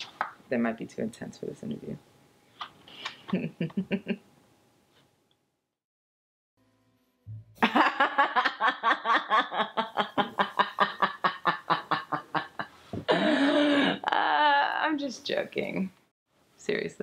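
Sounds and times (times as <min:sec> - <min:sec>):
woman laughing hard: 0:03.2 - 0:04.2, 0:07.6 - 0:14.4.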